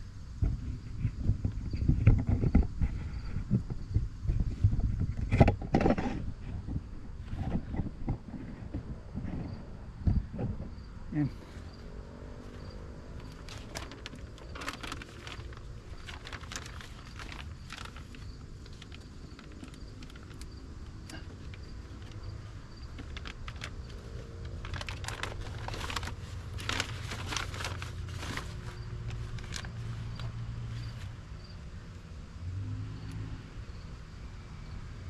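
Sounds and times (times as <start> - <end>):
plastic sheet peeling and crinkling: 13.2 - 30.4.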